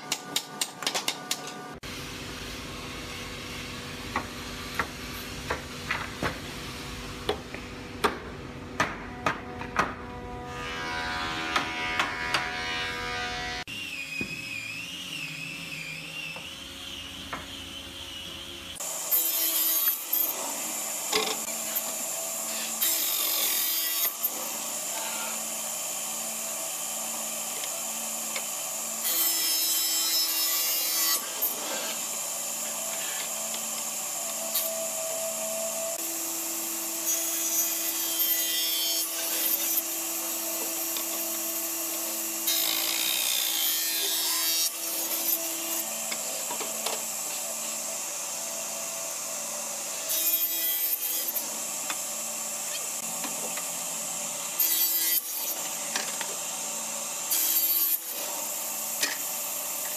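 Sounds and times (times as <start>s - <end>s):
saw blade cutting wood: 9.1s - 59.9s
table saw motor hum: 10.1s - 23.2s.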